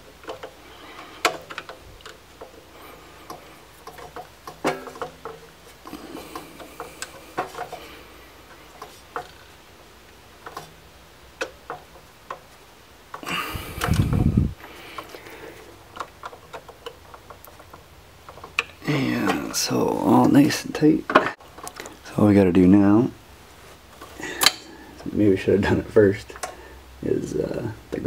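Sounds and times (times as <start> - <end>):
muffled rustle: 23.4 - 24.4.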